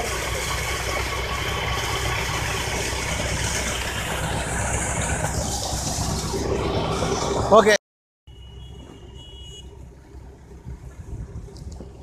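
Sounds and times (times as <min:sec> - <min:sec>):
water rushing from pipe: 0:00.0 - 0:07.8
tractor engine running: 0:00.0 - 0:12.0.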